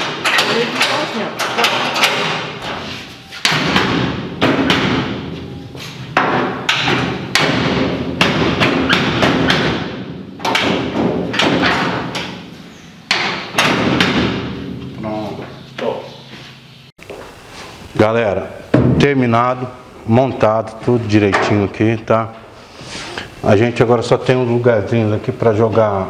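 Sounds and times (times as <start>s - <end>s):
panel thumping into metal door: 6.2s - 12.4s.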